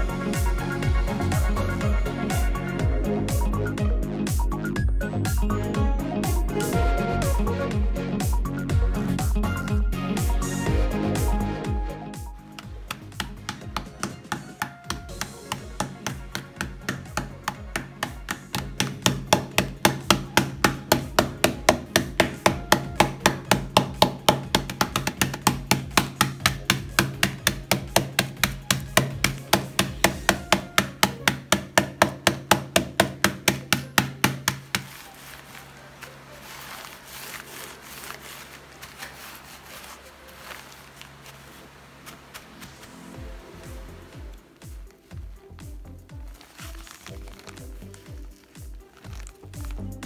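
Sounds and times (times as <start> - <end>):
rolling pin pounding cookies: 12.5 - 39.2
rolling pin rustling over bag: 12.5 - 43.2, 44.2 - 50.0.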